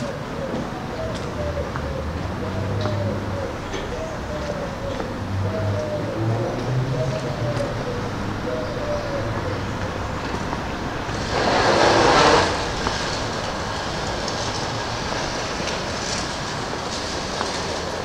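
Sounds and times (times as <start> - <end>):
street traffic rumble: 0.0 - 18.0
loud rushing hiss: 11.0 - 13.4.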